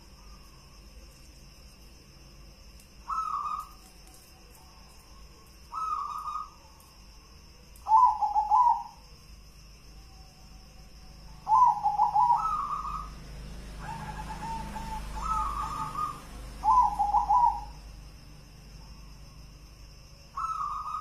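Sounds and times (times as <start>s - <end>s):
dove cooing: 3.0s - 3.9s, 5.6s - 6.6s, 7.8s - 9.0s, 11.3s - 17.8s, 20.4s - 21.0s.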